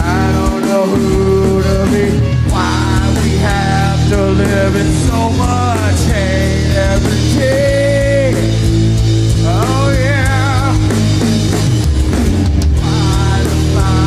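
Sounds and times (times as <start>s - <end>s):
man singing with vibrato: 0.0s - 11.4s, 12.8s - 14.0s
drums: 0.0s - 14.0s
electric guitar: 0.0s - 14.0s.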